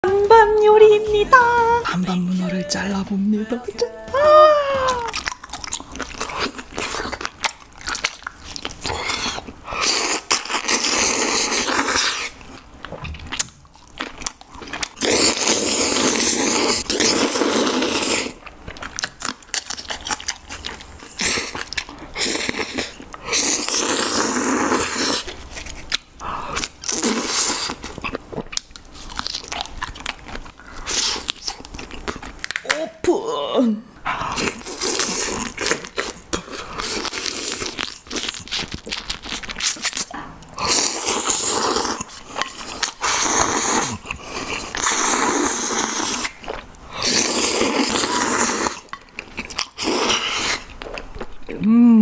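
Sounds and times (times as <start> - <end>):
wet chewing and crunching: 4.9 - 32.8, 34.0 - 51.7
loud noodle slurps: 8.8 - 12.4, 15.0 - 18.4, 22.2 - 25.8, 26.5 - 27.8, 34.2 - 38.7, 40.6 - 48.9, 49.7 - 50.7.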